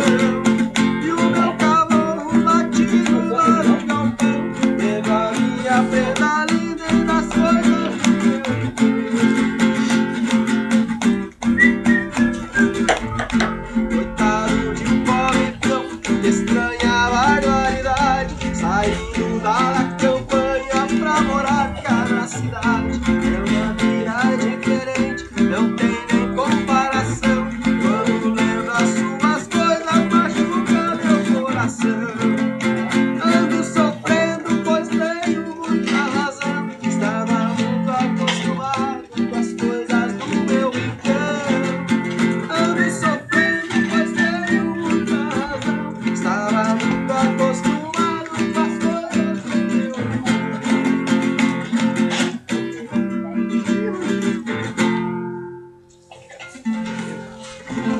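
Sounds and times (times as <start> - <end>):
acoustic guitar music: 0.0 - 57.9.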